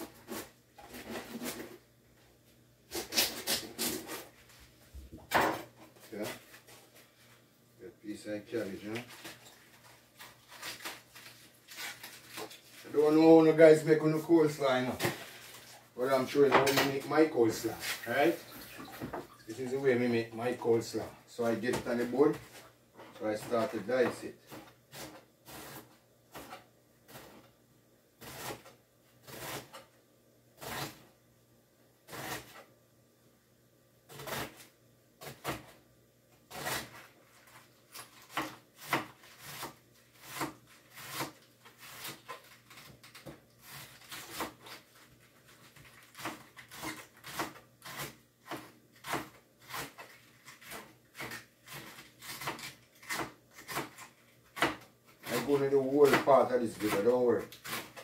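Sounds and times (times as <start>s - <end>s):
knife cutting on cutting board: 28.2s - 29.8s.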